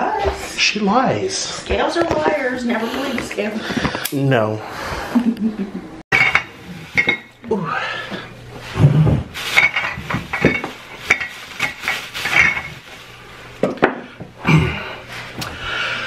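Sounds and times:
plastic bag rustling: 9.3 - 13.2.

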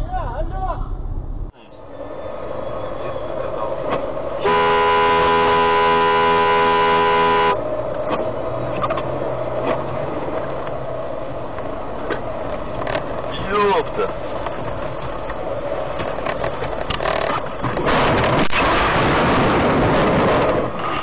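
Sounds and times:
engine and road noise: 0.0 - 21.0
car horn blast: 4.4 - 7.6.

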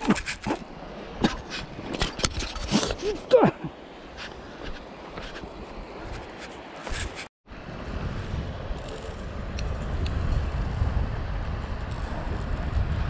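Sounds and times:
low rumbling wind noise: 7.5 - 13.0.

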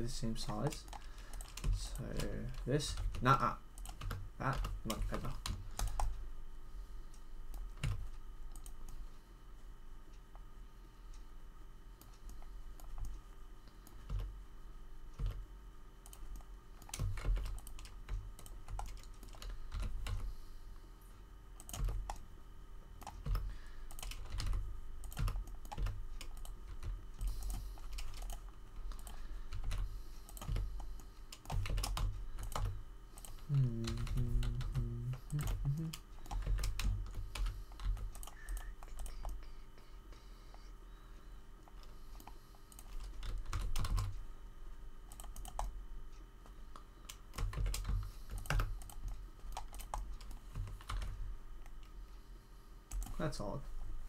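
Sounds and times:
faint steady hum: 0.0 - 54.0
keyboard keys tapping: 23.0 - 39.5, 47.4 - 51.1.

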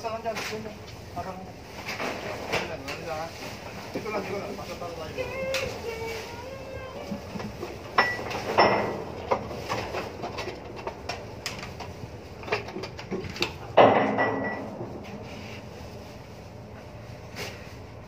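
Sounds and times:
metal clanks and knocks: 7.2 - 15.7.

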